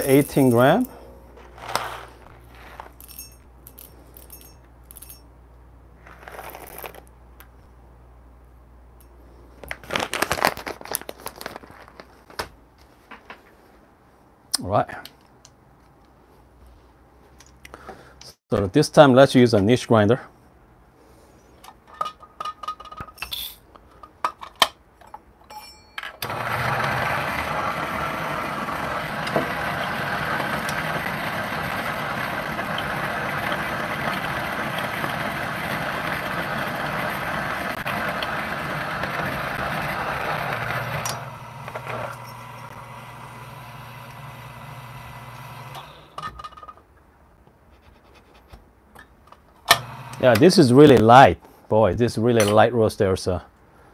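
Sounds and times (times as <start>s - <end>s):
coffee beans clinking: 0.0s - 5.3s, 6.0s - 7.1s, 25.6s - 43.4s
coffee grinder grinding: 1.4s - 3.2s, 6.0s - 7.1s, 26.2s - 46.2s, 49.8s - 50.6s
grinder motor humming: 26.2s - 46.2s, 49.8s - 50.4s.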